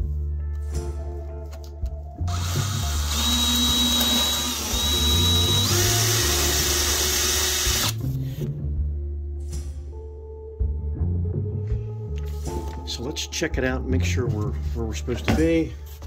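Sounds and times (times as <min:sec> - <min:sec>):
cordless drill boring through foam: 0:02.3 - 0:08.0.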